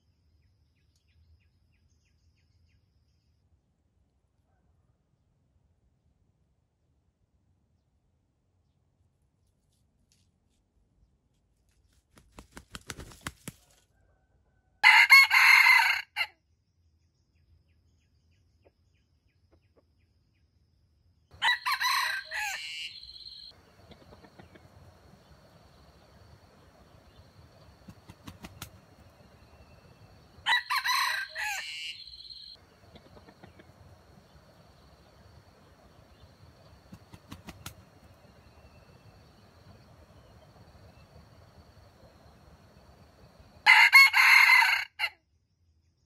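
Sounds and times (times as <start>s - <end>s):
rooster crowing: 13.9s - 16.3s, 21.4s - 45.1s.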